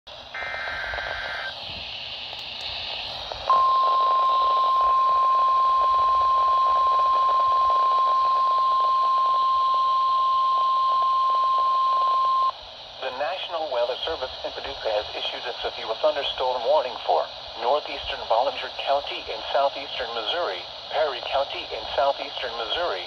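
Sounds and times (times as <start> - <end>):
receiver hiss: 0.1 - 23.0
paired data tones: 0.3 - 1.6, 3.4 - 12.6
steady warning alarm tone: 3.5 - 12.5.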